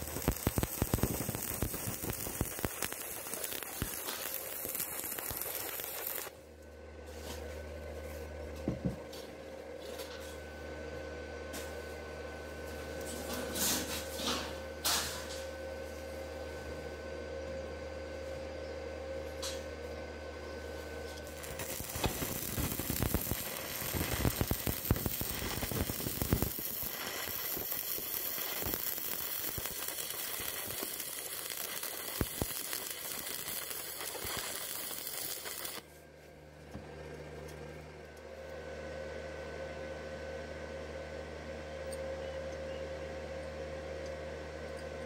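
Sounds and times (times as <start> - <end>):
welding arc crackling and popping: 0.0 - 6.4, 21.0 - 35.9
low steady hum: 0.0 - 45.0.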